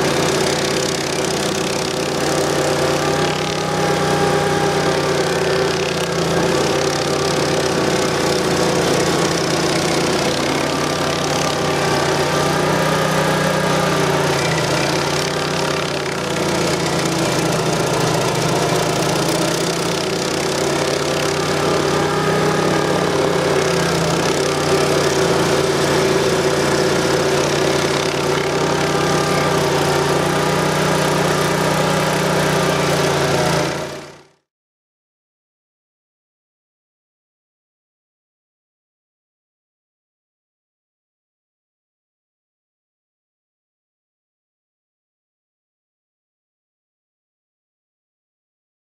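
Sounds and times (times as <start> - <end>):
cutter wheel grinding stump: 0.0 - 34.4
gas engine running under load: 0.0 - 34.4.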